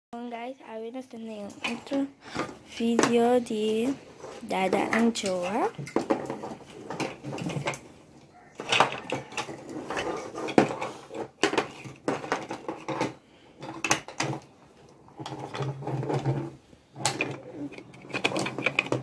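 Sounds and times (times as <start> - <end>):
plastic bricks clattering and clicking: 8.6 - 16.4, 17.0 - 19.0.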